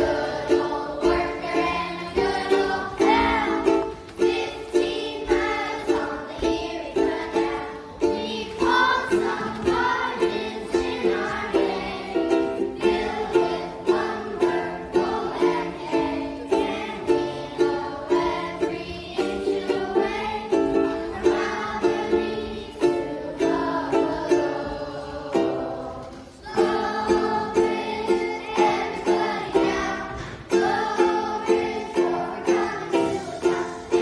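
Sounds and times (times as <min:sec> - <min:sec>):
children singing: 0:00.0 - 0:34.0
strummed stringed instrument: 0:00.0 - 0:34.0.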